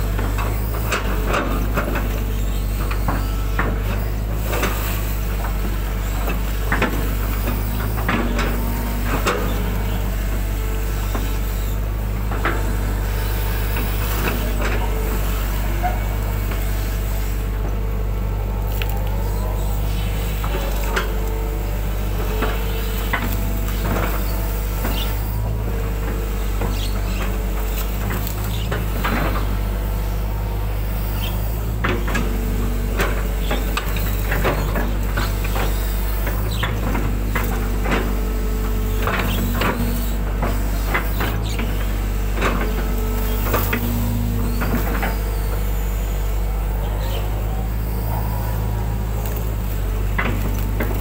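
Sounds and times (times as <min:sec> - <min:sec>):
excavator engine running: 0:00.0 - 0:51.0
hydraulic whine: 0:00.0 - 0:51.0.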